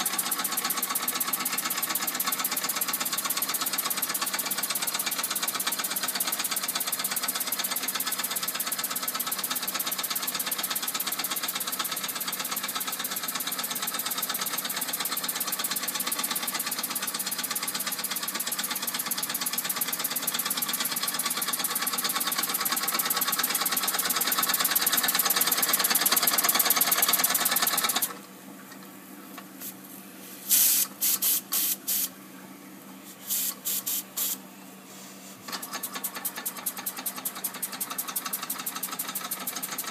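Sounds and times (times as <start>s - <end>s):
toy steam engine chuffing: 0.0s - 28.2s, 35.5s - 39.9s
loud bursts of steam hiss: 30.4s - 32.1s, 33.2s - 34.4s.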